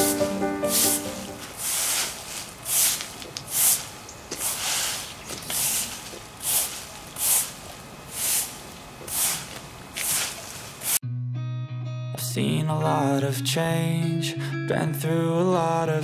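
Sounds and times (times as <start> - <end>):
push broom sweeping leaves on concrete: 0.0 - 11.0.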